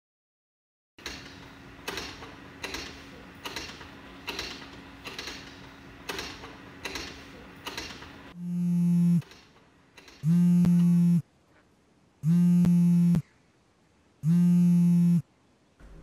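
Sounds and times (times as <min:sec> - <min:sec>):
scooter kick-start clacks: 0:01.0 - 0:08.1.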